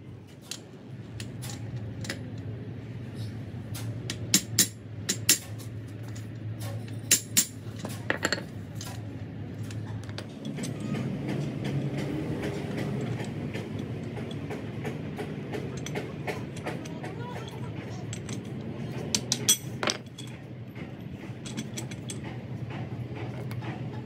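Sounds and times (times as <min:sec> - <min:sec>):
low hum and rumble: 0:00.0 - 0:24.0
metal tools clinking: 0:04.4 - 0:14.5, 0:15.6 - 0:20.5, 0:21.3 - 0:22.3.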